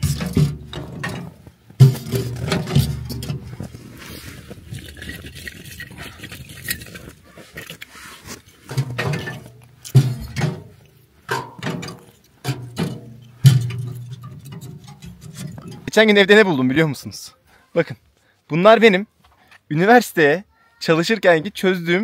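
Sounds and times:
wooden sticks clattering: 0.0s - 16.1s.

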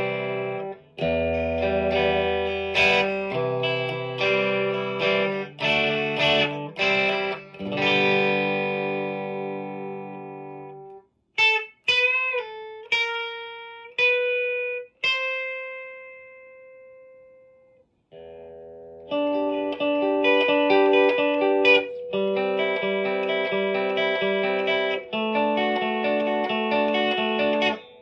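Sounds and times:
electric guitar chord ringing: 0.0s - 28.0s
electric guitar notes with bends: 0.0s - 28.0s
rhythmic picked guitar chords: 0.0s - 28.0s.

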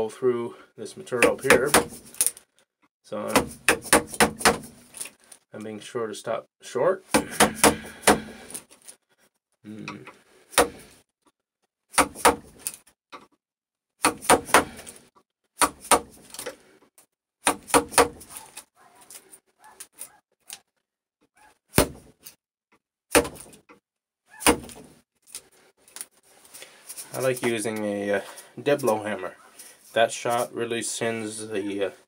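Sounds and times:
hammer striking chisel: 3.3s - 4.7s.

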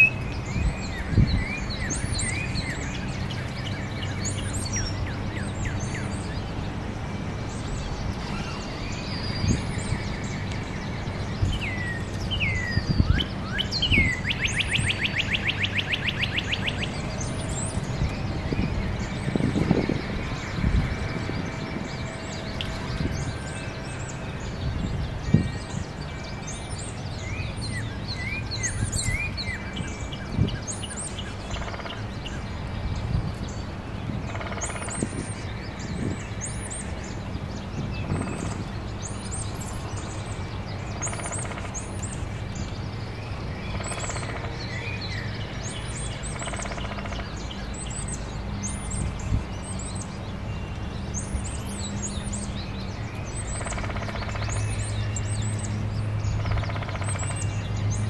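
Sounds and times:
songbirds chirping: 0.0s - 58.0s.

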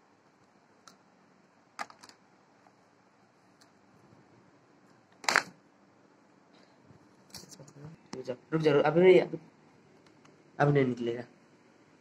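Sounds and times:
power cord handling clicks: 5.2s - 5.5s.

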